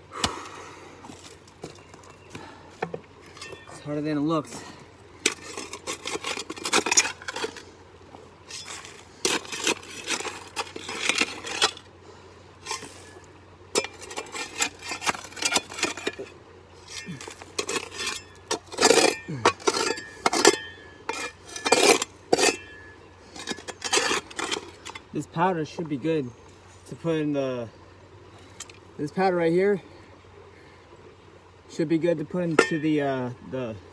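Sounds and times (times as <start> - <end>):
stones clinking against shovel: 2.8 - 3.9, 5.2 - 7.6, 8.5 - 11.8, 12.6 - 25.1, 32.5 - 33.1
shovel scraping into gravel: 5.3 - 7.7, 8.5 - 11.9, 12.6 - 13.2, 13.8 - 16.2, 16.8 - 25.0.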